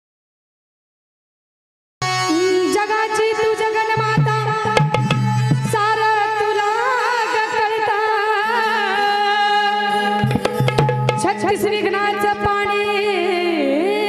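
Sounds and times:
woman singing into microphone: 0:02.2 - 0:10.5, 0:11.1 - 0:14.0
drum strokes: 0:04.6 - 0:05.8, 0:10.2 - 0:11.6.

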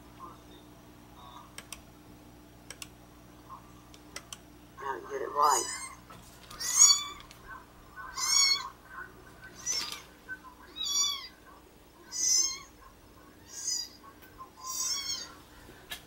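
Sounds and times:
kitten meowing through speakers: 0:06.6 - 0:07.3, 0:08.1 - 0:08.7, 0:14.6 - 0:15.3.

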